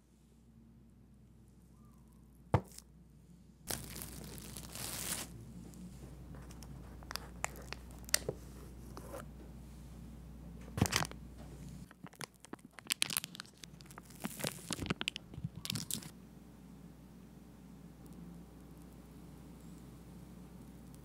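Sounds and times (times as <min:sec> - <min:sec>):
parchment paper crinkling: 0:03.7 - 0:05.4, 0:06.3 - 0:08.4, 0:11.8 - 0:16.1.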